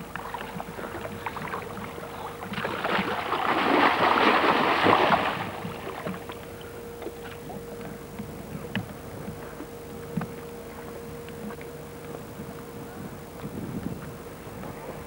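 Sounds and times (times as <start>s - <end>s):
water lapping: 0.0s - 8.7s
water splashing: 0.2s - 6.4s.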